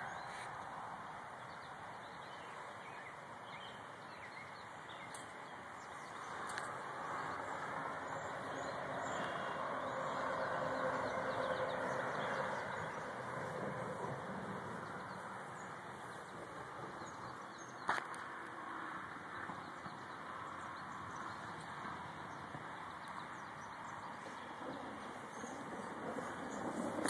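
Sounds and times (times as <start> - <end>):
outdoor background noise: 0.0 - 27.0
small birds chirping: 1.4 - 18.2.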